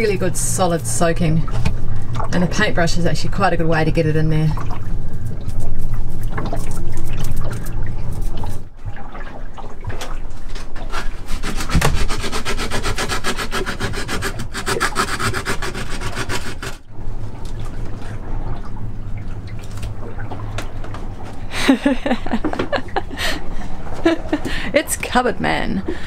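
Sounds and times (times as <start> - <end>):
low steady hum: 0.0 - 26.0
hand sanding fibreglass: 10.9 - 16.9.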